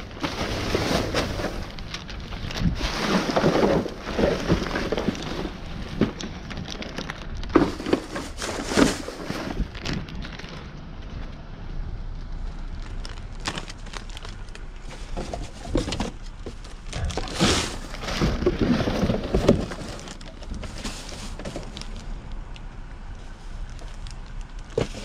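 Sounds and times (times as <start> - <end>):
plastic bags crinkling: 0.0 - 10.8, 12.7 - 25.0
knocks and scrapes: 0.0 - 11.4, 14.8 - 22.1, 24.7 - 25.0.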